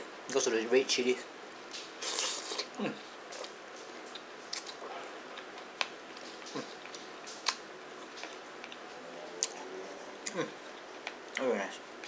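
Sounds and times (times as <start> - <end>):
noodles slurped and chewed: 2.0 - 3.6.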